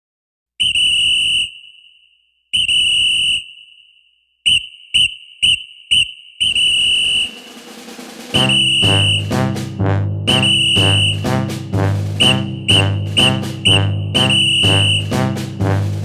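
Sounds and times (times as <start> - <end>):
whistle blasts: 0.6 - 7.7, 8.3 - 9.5, 10.3 - 11.4, 12.2 - 15.4.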